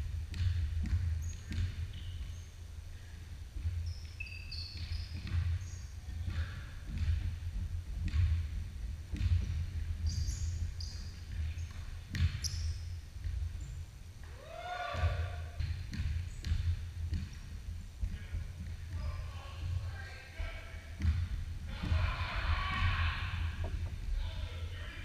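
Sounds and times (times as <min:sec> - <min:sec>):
basketball bouncing on wood floor: 0:00.2 - 0:02.5, 0:03.6 - 0:13.8, 0:15.0 - 0:19.8, 0:21.0 - 0:24.1
shoe squeaks: 0:01.2 - 0:02.6, 0:03.8 - 0:06.0, 0:10.0 - 0:13.0
running feet: 0:04.8 - 0:24.4.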